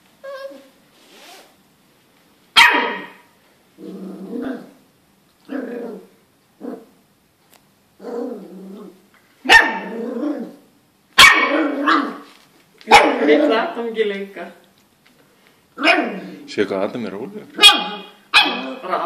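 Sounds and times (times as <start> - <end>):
puppy barking: 2.6 - 3.3, 9.4 - 9.9, 11.2 - 12.2, 12.9 - 13.4, 17.6 - 18.9
puppy growling: 3.8 - 4.8, 5.4 - 7.0, 8.0 - 9.0, 9.8 - 10.7.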